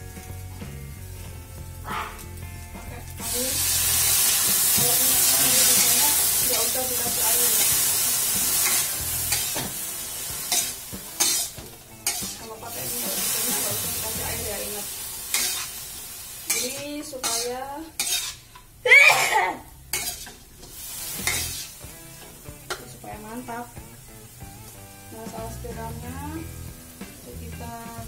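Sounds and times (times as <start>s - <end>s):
water sizzling in hot oil: 0.0s - 28.0s.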